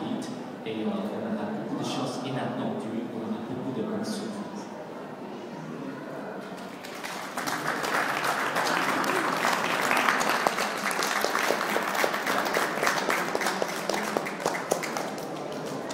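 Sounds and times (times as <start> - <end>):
audience applauding: 6.7 - 15.9.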